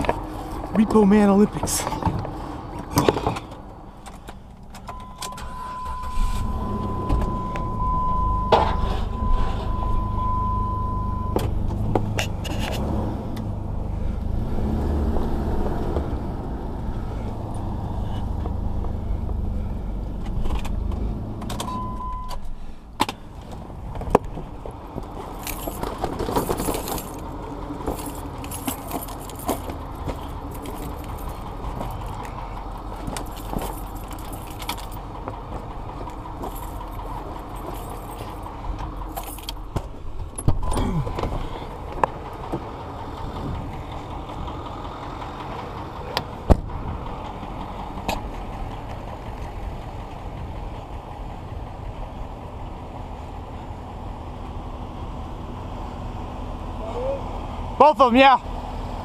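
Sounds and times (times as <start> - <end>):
car engine running: 0.0 - 56.6
electronic warning tone: 4.9 - 11.4
keys jingling: 25.1 - 35.0, 36.1 - 39.7.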